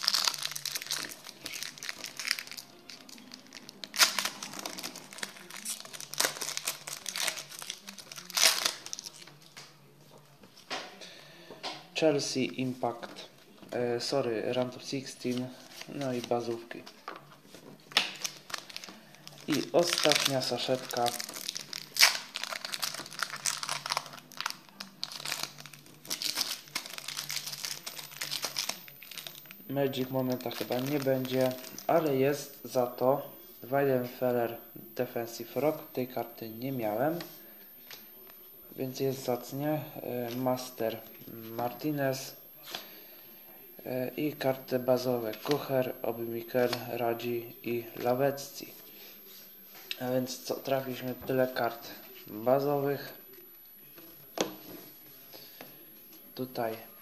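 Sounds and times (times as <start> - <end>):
foil packet tearing and crinkling: 0.0 - 9.3, 18.1 - 29.6.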